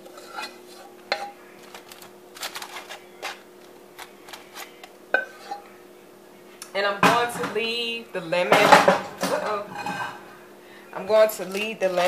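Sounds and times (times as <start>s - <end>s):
faint steady hum: 0.0s - 12.0s
aluminium foil crinkling: 1.4s - 5.0s, 11.1s - 12.0s.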